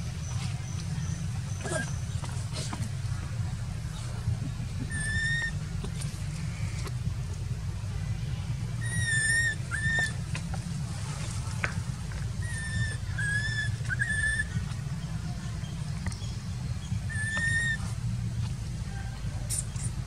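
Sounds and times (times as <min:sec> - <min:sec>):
low rumble: 0:00.0 - 0:20.0
baby monkey coo calls: 0:04.8 - 0:05.6, 0:08.8 - 0:10.3, 0:12.4 - 0:14.8, 0:16.8 - 0:17.9.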